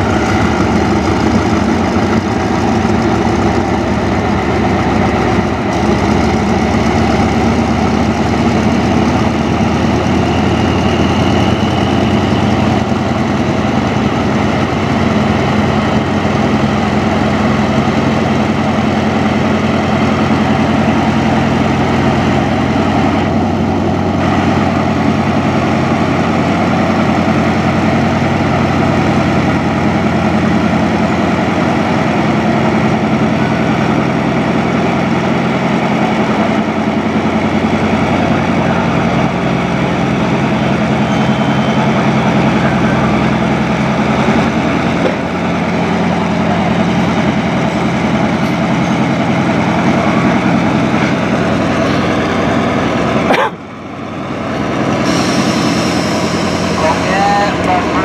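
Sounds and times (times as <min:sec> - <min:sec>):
diesel train engine running: 0:00.0 - 0:58.0.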